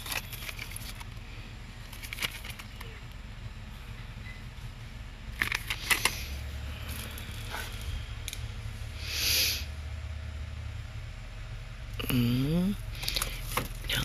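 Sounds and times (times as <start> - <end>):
crayon packs clicking and knocking: 0.0 - 1.1, 1.8 - 2.9
steady low hum: 0.0 - 14.0.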